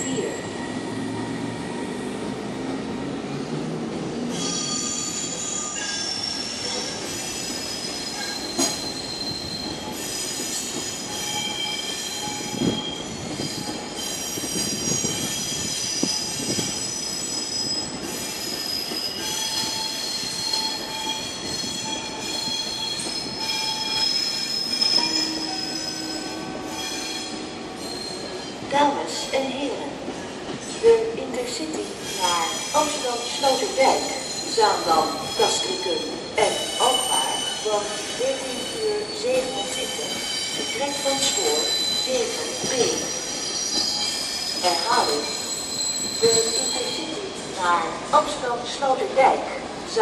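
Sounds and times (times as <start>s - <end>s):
train wheels squealing on rails: 0.0s - 2.8s, 4.2s - 29.3s, 31.6s - 47.8s.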